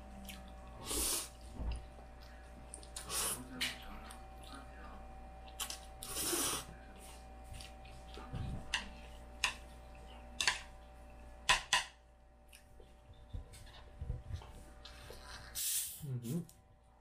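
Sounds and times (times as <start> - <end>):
faint steady hum: 0.0 - 17.0
chopsticks clicking on a bowl: 8.7 - 9.6, 10.4 - 10.7.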